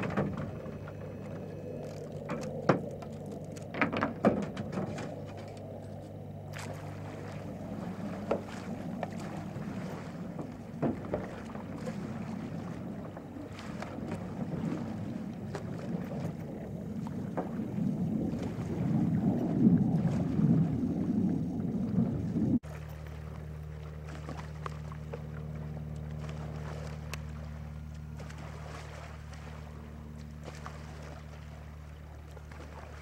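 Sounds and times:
steady low hum: 0.0s - 33.0s
paddle splashing in water: 6.5s - 33.0s
wind noise: 14.1s - 22.6s.

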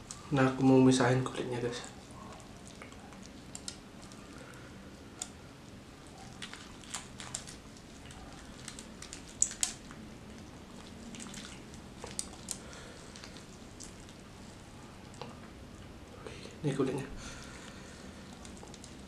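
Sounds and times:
crispy chicken skin crackling: 1.8s - 15.3s
wet squishes: 1.8s - 16.2s, 17.2s - 19.0s.

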